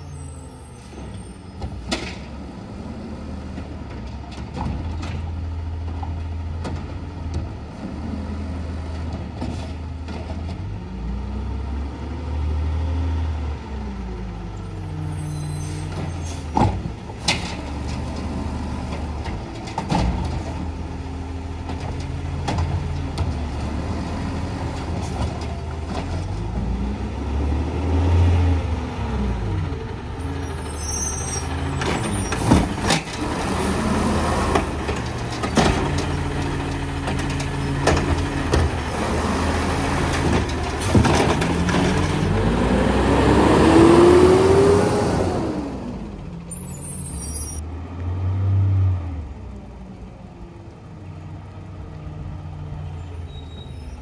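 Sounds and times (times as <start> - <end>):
diesel engine revving: 10.6 - 53.6
trash carts banging: 31.4 - 42.6.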